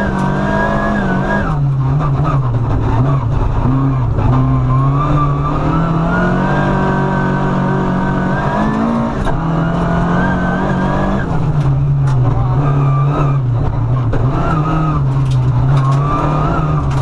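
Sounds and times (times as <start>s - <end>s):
rally car engine revving: 0.0s - 17.0s
tyre and road noise: 0.0s - 17.0s
gravel striking car: 8.4s - 17.0s.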